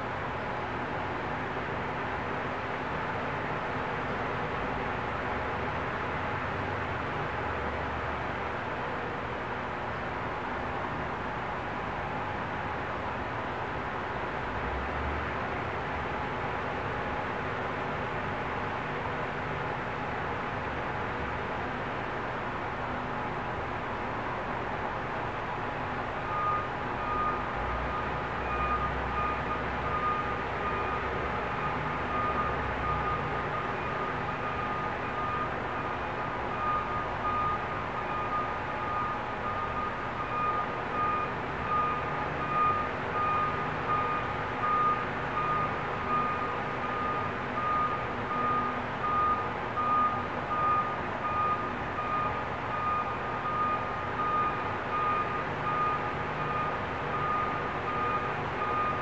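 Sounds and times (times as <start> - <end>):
vehicle reversing alarm beeping: 26.1 - 59.0.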